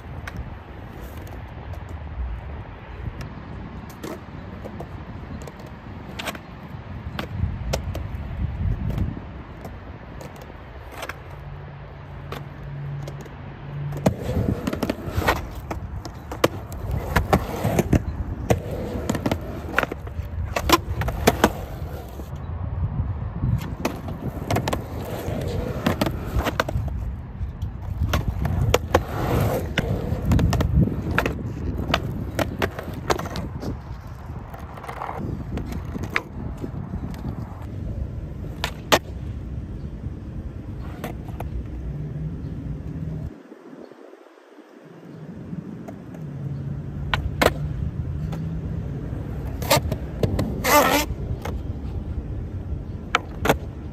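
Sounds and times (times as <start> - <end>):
skateboard wheels rolling on concrete: 0.0 - 53.9
skateboard clacks and knocks: 27.7 - 33.8.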